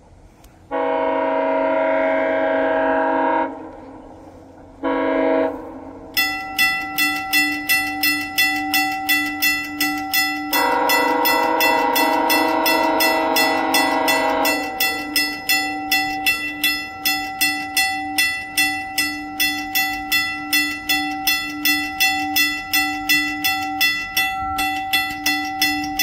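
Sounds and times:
train horn blasts: 0.7s - 26.0s
bell ringing: 6.2s - 26.0s.

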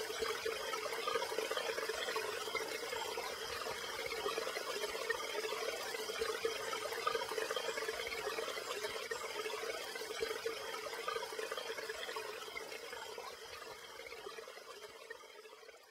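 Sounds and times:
running water in an aquarium: 0.0s - 15.9s.

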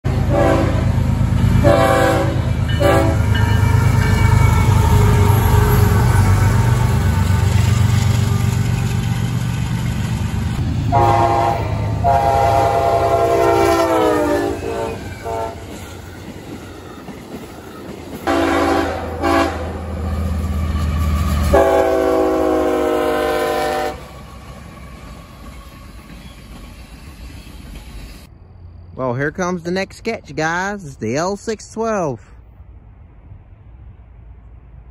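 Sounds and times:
freight train rumble: 0.0s - 34.9s
locomotive air horn blasts: 0.1s - 1.0s, 1.6s - 3.4s, 10.9s - 15.8s, 18.3s - 19.9s, 21.4s - 24.2s.

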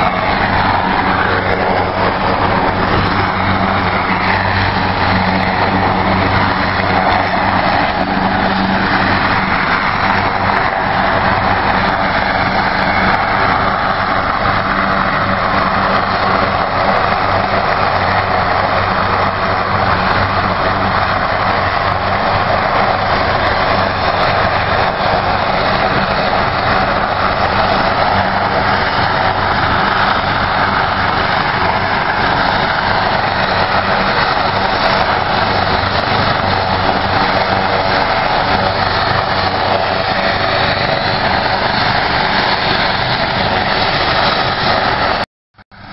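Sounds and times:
helicopter turbine and rotor: 0.0s - 45.9s.

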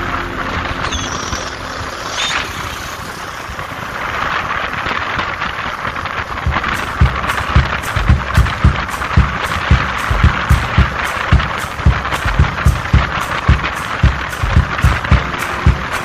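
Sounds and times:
low thumping beat: 6.4s - 16.0s.

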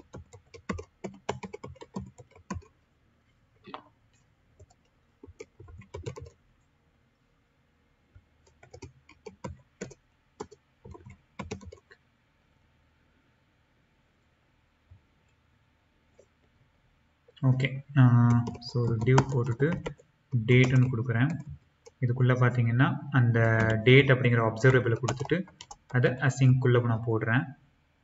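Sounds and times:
keyboard typing clicks: 0.0s - 2.7s, 4.6s - 6.4s, 8.4s - 12.0s, 18.3s - 20.0s, 20.6s - 22.0s, 23.5s - 23.9s, 24.6s - 26.0s.

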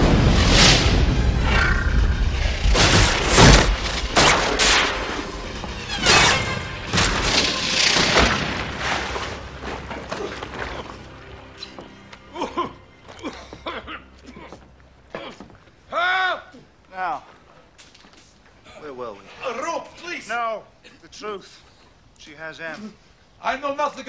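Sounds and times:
explosion booms: 0.0s - 5.4s, 6.0s - 9.1s
crashing metal impacts: 0.0s - 10.1s
film score music: 0.0s - 15.9s.

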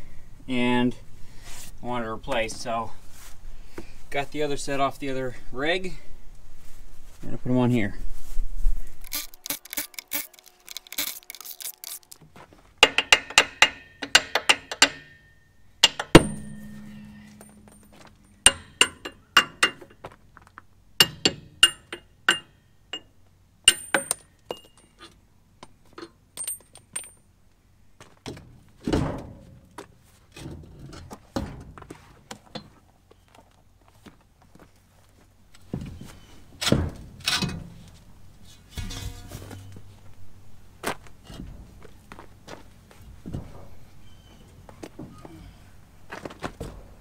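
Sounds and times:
metal clinks and clanks: 9.0s - 12.2s, 12.8s - 20.0s, 21.0s - 23.1s, 23.7s - 25.1s, 26.0s - 27.3s, 38.8s - 39.9s
rattling strikes on metal: 12.8s - 20.0s, 21.0s - 23.1s, 23.7s - 24.9s, 38.7s - 40.0s.

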